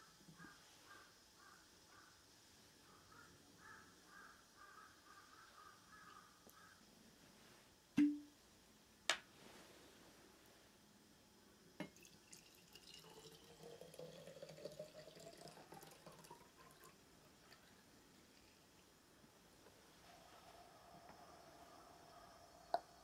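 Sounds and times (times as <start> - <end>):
liquid gurgling into a flask: 11.8 - 18.6.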